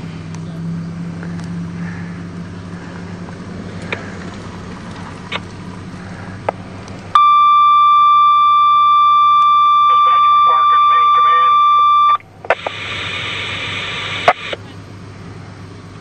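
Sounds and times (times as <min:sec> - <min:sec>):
vehicle engine idling: 0:00.0 - 0:12.5
high-pitched radio alert tone: 0:07.2 - 0:14.6
faint clicks: 0:12.2 - 0:13.0.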